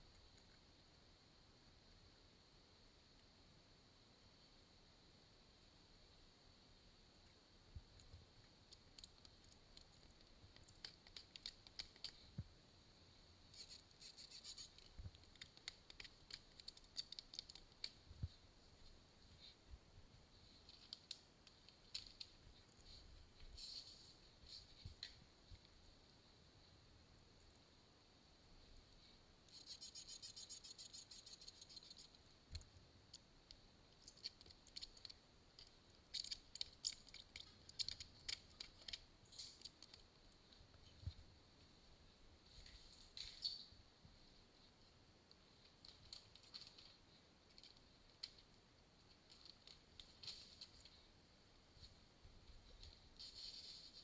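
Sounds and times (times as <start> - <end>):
light clicks and ticks: 7.2 - 12.5, 13.5 - 19.6, 20.5 - 25.8, 28.9 - 41.2, 45.2 - 51.0.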